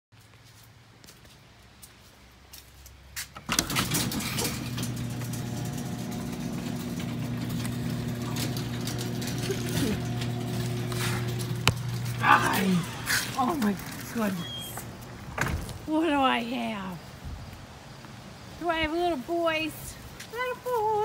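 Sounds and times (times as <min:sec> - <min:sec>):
steady machine hum: 0:03.5 - 0:15.4.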